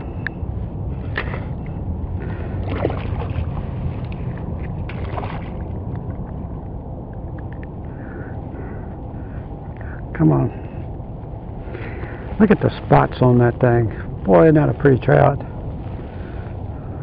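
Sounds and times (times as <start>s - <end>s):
steady low rumble: 0.0s - 17.0s
fish splashing at surface: 2.6s - 3.6s, 4.9s - 5.7s.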